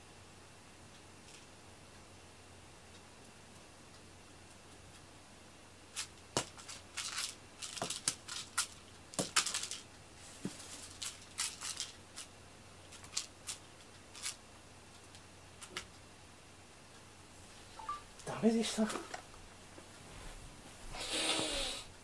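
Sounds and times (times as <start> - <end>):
string toy rustling and clicking: 5.9 - 12.3, 12.9 - 16.0.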